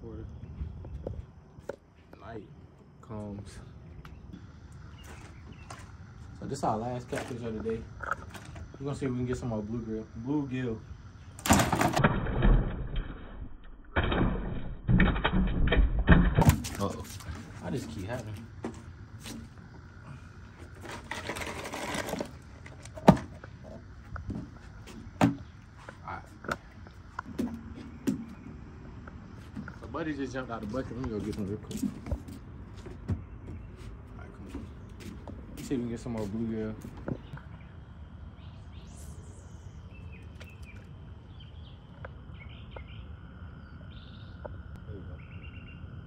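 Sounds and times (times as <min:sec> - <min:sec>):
birds chirping: 0:00.0 - 0:11.4, 0:22.1 - 0:46.0
sharp thumps on dock: 0:24.2 - 0:25.5.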